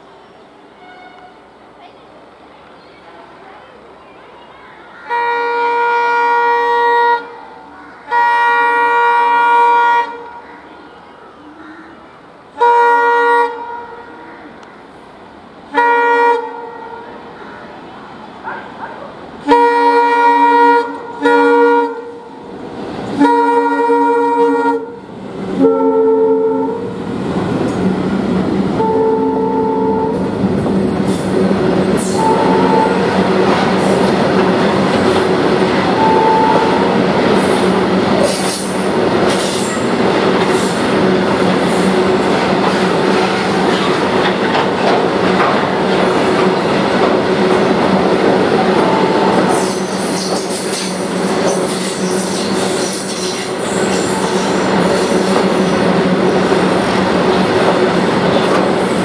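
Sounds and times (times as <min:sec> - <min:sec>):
locomotive horn blasts: 0:00.8 - 0:01.4, 0:05.1 - 0:07.4, 0:08.1 - 0:10.3, 0:12.6 - 0:14.1, 0:15.7 - 0:17.1, 0:19.4 - 0:22.4, 0:23.1 - 0:25.0, 0:25.6 - 0:27.0, 0:28.8 - 0:30.3, 0:32.0 - 0:33.3, 0:35.9 - 0:37.0, 0:48.8 - 0:49.6
locomotive engines droning: 0:16.6 - 0:59.0
train wheels clacking and squealing: 0:30.2 - 0:35.9, 0:36.9 - 0:47.9, 0:48.6 - 0:59.0.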